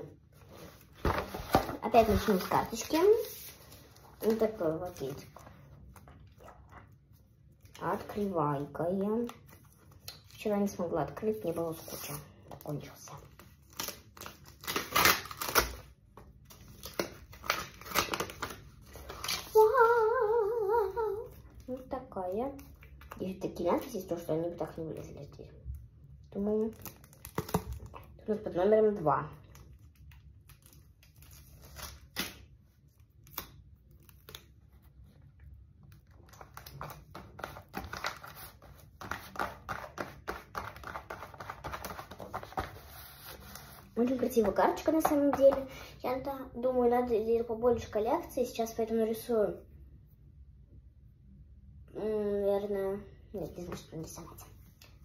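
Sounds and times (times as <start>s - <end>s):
paper rustling and crinkling: 0.3s - 8.3s, 29.5s - 45.7s
packet rustling and crinkling: 35.9s - 45.8s.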